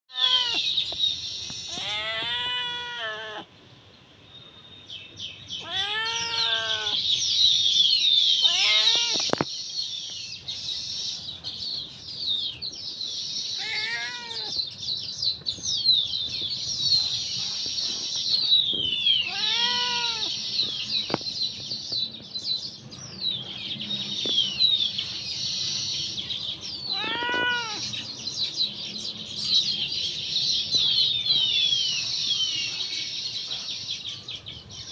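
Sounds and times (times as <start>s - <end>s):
cat meowing: 0.1s - 0.7s, 1.7s - 3.5s, 5.6s - 7.0s, 8.4s - 9.3s, 13.6s - 14.6s, 19.2s - 20.3s, 26.8s - 28.0s
birds chirping: 0.1s - 34.9s.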